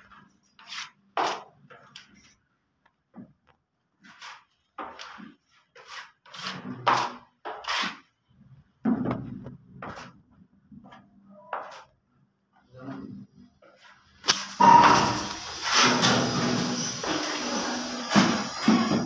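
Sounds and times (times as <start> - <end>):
putty knife scraping: 5.8 - 8.1.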